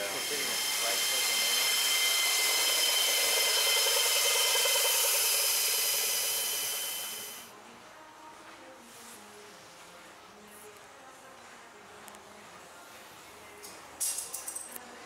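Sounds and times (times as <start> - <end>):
air tool hissing and whining: 0.0 - 7.5.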